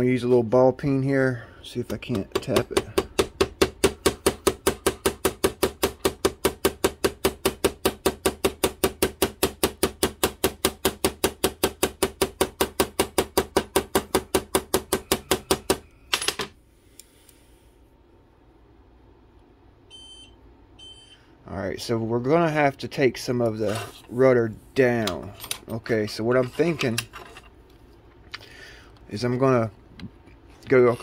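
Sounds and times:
hammer tapping on metal: 1.9 - 15.8.

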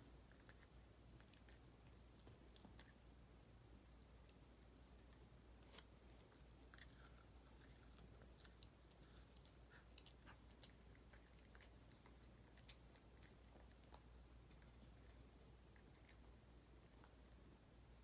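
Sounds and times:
dog chewing crunchy snack: 4.9 - 16.2.

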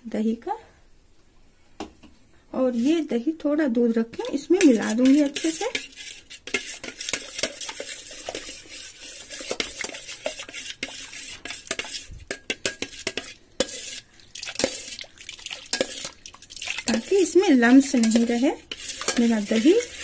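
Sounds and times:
spoon stirring in metal bowl: 2.6 - 3.2, 4.1 - 20.0.

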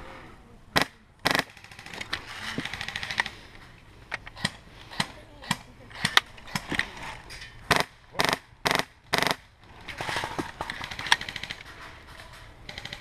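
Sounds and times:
airsoft gun firing bursts: 0.8 - 2.0, 7.7 - 9.4.

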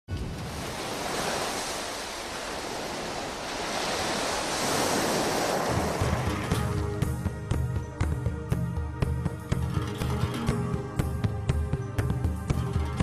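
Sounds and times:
sea waves surf: 0.1 - 8.1
low music notes: 5.8 - 13.0.

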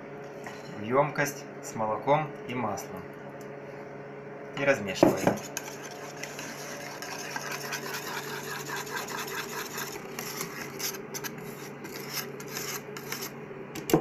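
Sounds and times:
whisk scraping a metal saucepan: 5.1 - 13.3.

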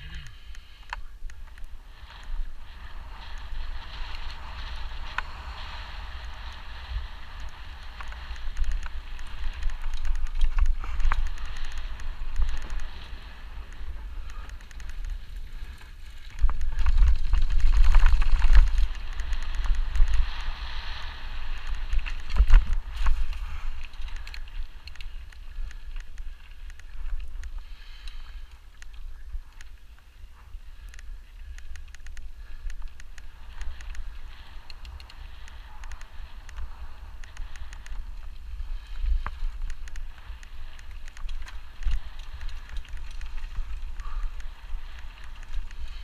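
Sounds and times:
bike clicks and rattles: 0.0 - 46.0
wind buffeting microphone: 1.1 - 27.6.

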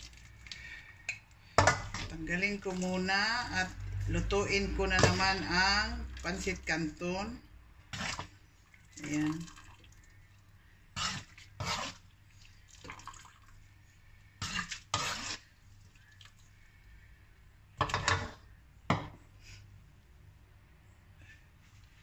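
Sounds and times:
metal ladle scraping a wok: 11.0 - 12.0, 14.4 - 15.5.

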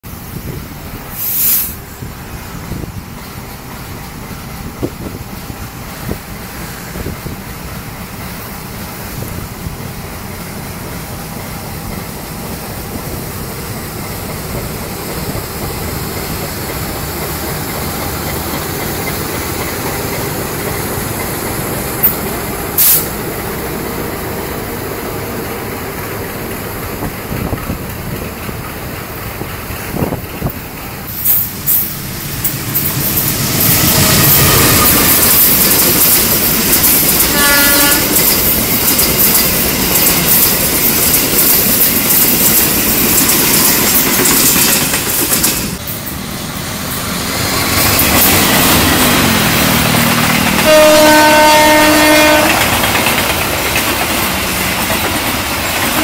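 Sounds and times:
train rumbling past on rails: 0.0 - 56.0
short sharp hisses: 1.1 - 2.0.

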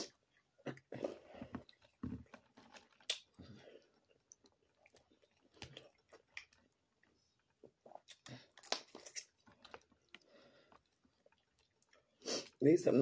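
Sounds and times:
chewing: 0.0 - 12.6
shells cracked and peeled: 8.1 - 9.6.

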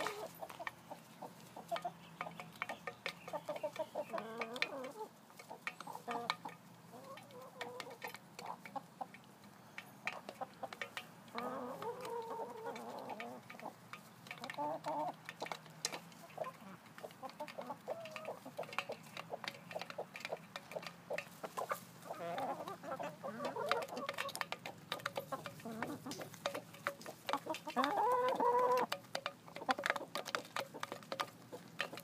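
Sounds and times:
hens clucking: 0.0 - 32.0
beaks tapping on metal pan: 1.7 - 4.7.

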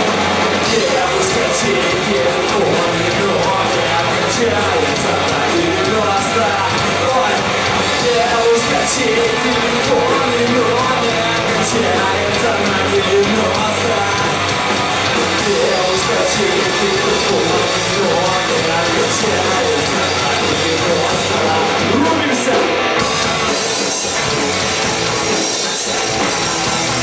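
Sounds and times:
cymbals keeping fast beat: 0.0 - 21.8, 23.0 - 27.0
live rock band playing: 0.0 - 27.0.

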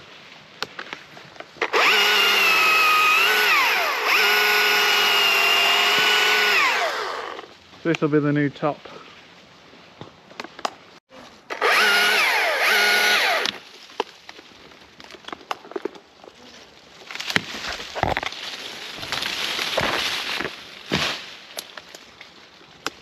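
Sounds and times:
chainsaw cutting wood: 1.6 - 7.5, 11.5 - 13.6
wood snapping: 13.4 - 16.1, 17.0 - 23.0
rough crackling noise: 13.6 - 23.0.

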